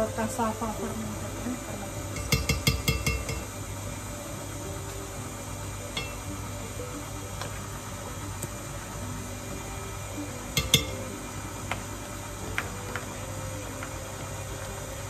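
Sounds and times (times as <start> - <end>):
stand mixer humming: 0.0 - 15.0
spoon clinking on tub and bowl: 2.2 - 3.5, 10.6 - 11.0.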